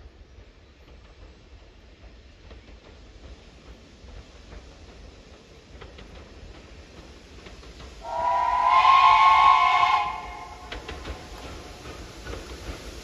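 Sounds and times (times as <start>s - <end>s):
steam locomotive whistle: 8.0s - 11.0s.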